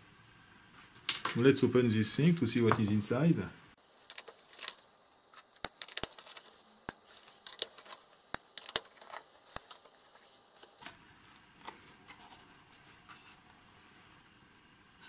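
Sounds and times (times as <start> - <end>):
faint handling noise: 3.8 - 14.0.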